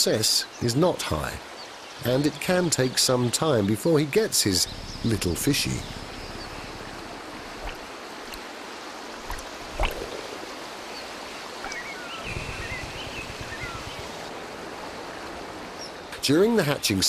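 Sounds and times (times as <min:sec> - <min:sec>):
river water rushing: 0:00.0 - 0:17.0
bird splashing into water: 0:04.6 - 0:12.1.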